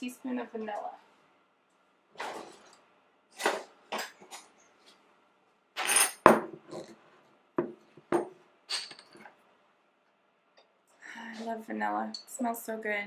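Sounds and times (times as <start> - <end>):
metal measuring spoons clinking: 8.7 - 9.3.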